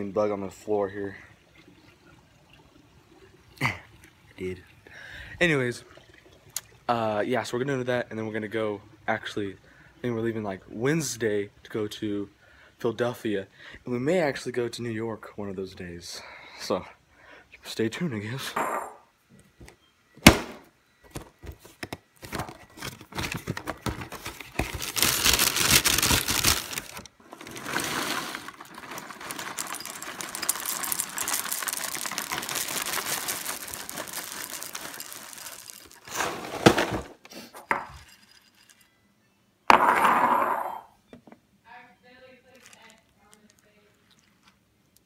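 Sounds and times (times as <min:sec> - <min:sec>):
cereal pouring into a bowl: 0:24.6 - 0:37.0
bowl and box knocking: 0:39.7 - 0:40.9.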